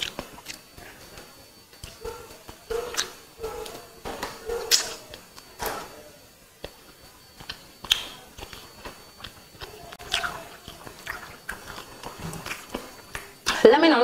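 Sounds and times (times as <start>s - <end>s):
person chewing food: 0.0s - 6.0s, 6.6s - 13.6s
mouth clicks: 1.8s - 6.0s, 6.6s - 13.6s
wet lip smacks: 2.9s - 3.2s, 4.6s - 5.1s, 7.4s - 9.4s.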